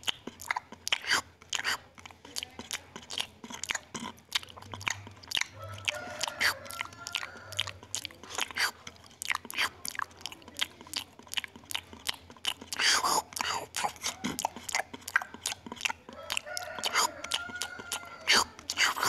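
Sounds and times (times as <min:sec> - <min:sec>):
monkey chewing and lip-smacking: 0:00.0 - 0:19.0.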